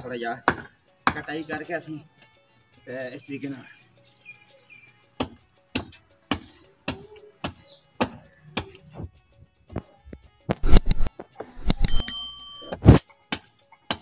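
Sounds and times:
hand tool chopping wood: 0.4 - 1.3, 5.2 - 8.8, 12.8 - 14.0.

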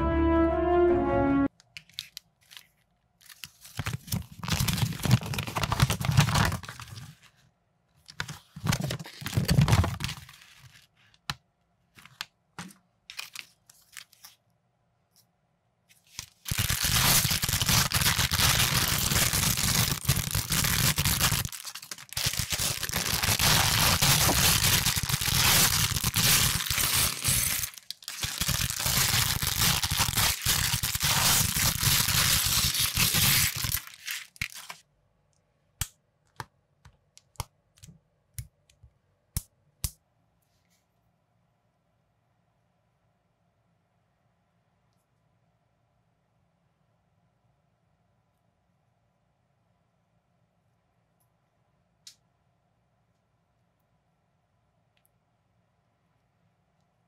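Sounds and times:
plastic bags crinkling and tearing: 2.0 - 7.1, 16.2 - 34.8.

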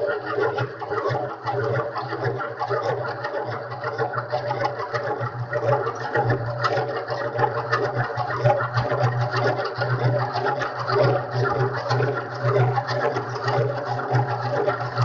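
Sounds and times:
honey extractor whirring: 0.0 - 15.0.

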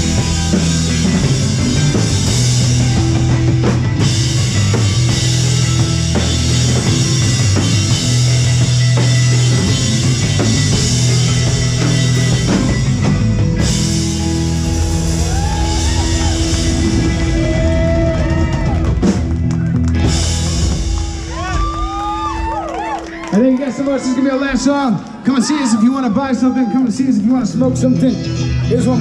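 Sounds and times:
lead guitar bending notes: 0.0 - 21.4
live rock band playing: 0.0 - 23.6, 26.1 - 29.0.

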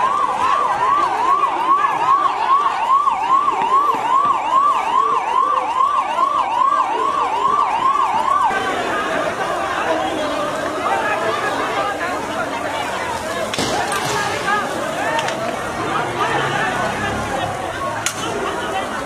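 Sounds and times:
siren yelping: 0.0 - 10.1.

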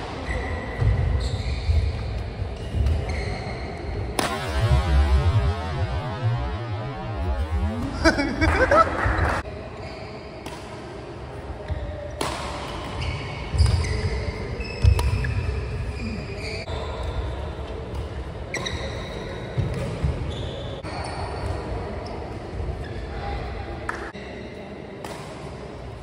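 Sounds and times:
shoes squeaking on court: 0.3 - 3.9
racket hitting shuttlecock: 4.1 - 4.6, 12.2 - 12.9.

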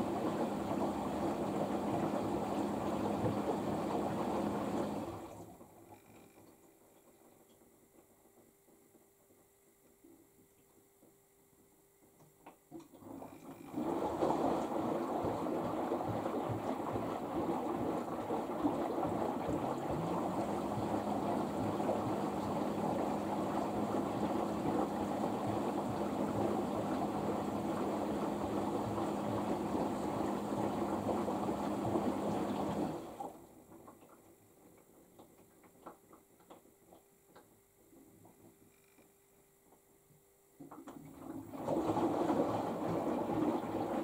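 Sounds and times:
water sloshing in drum: 0.0 - 6.1, 12.8 - 37.0, 40.6 - 44.0
washing machine hum: 0.0 - 39.0, 39.8 - 44.0.

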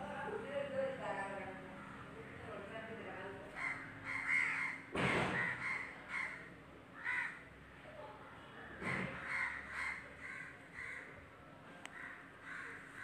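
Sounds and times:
crows cawing: 3.6 - 7.5, 8.8 - 11.2, 11.9 - 13.0.

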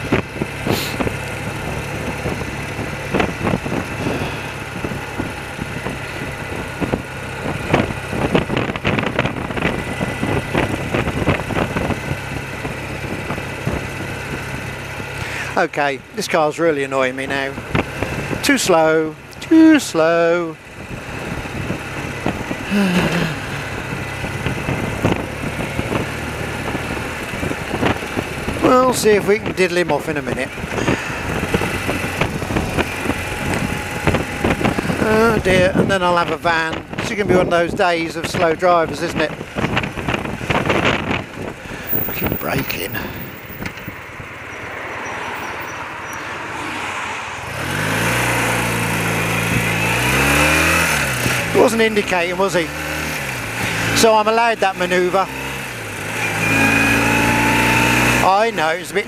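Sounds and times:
wind rush: 0.0 - 14.7, 20.8 - 28.7, 30.3 - 37.8, 39.1 - 51.4
motorcycle engine running: 0.0 - 46.2, 47.5 - 59.0
low voice murmur: 22.7 - 23.6.

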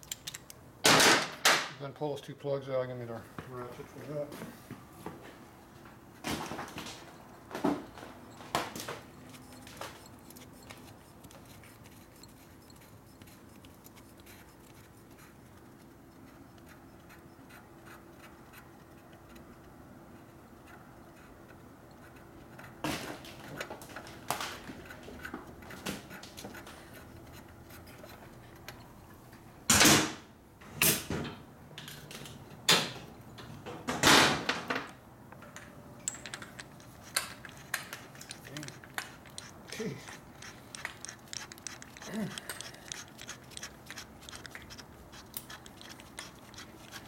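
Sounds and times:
tool clicks and knocks: 31.8 - 47.0.

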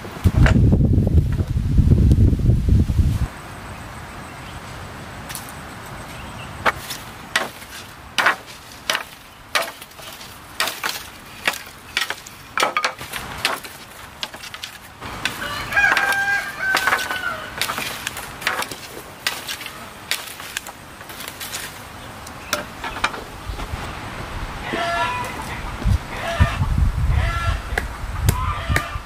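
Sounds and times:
machete chopping bamboo: 6.6 - 21.8
rooster crowing: 15.0 - 17.9, 24.6 - 27.7, 28.4 - 29.0.

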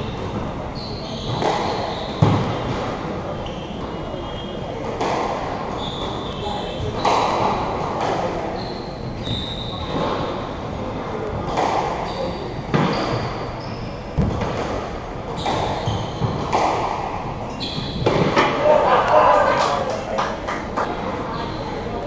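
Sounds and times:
sneakers squeaking on wooden floor: 0.8 - 2.8, 8.5 - 10.3, 12.0 - 14.3, 15.3 - 16.6, 17.4 - 18.8
squash ball echoing knocks: 1.2 - 3.2, 14.2 - 18.7.

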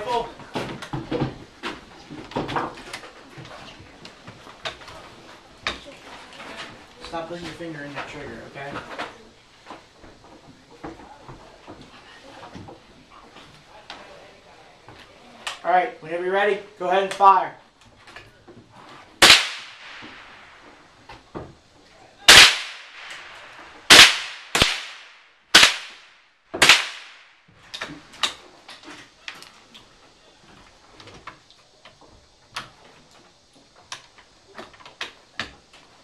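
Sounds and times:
rifle shots: 19.2 - 20.6, 22.3 - 27.3.

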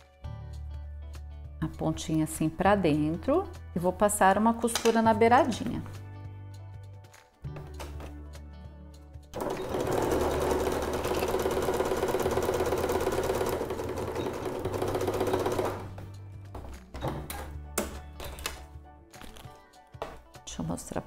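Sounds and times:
electric sewing machine stitching: 9.4 - 16.0.

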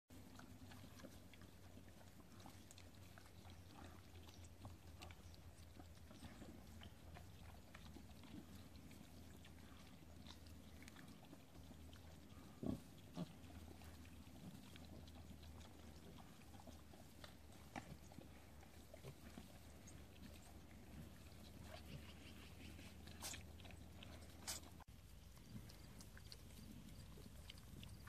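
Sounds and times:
clicks of piglet rooting in dirt: 0.1 - 28.0
piglet snuffling: 0.2 - 28.0
piglet grunts: 21.0 - 24.8.

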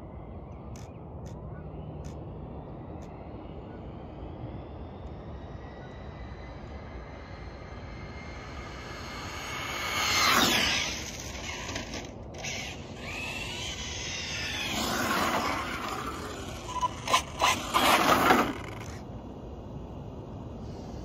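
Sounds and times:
rc car electric motor whining: 6.4 - 19.0.

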